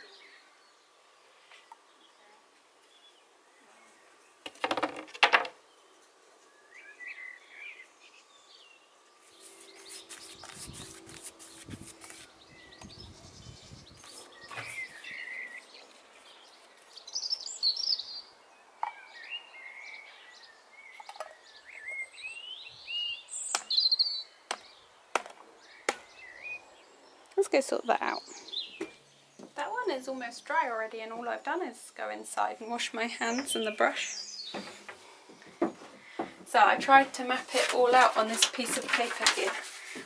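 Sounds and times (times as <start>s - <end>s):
birds chirping and trilling: 0.0s - 4.8s, 5.6s - 40.0s
paintbrush brushing on wood: 9.2s - 12.4s.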